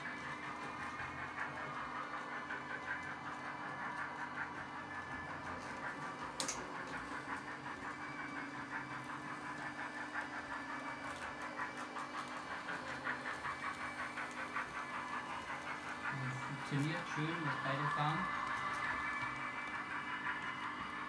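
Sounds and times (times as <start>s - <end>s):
model locomotives humming: 0.0s - 21.0s
steam chuffing: 0.0s - 21.0s.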